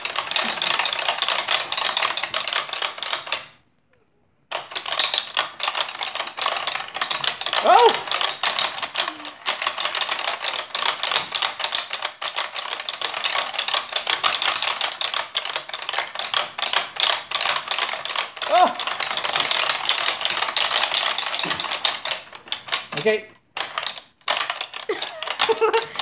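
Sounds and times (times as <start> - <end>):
plastic buttons clicking rapidly: 0.0 - 3.5, 4.5 - 26.0
person crying out: 7.5 - 8.2, 18.4 - 19.0.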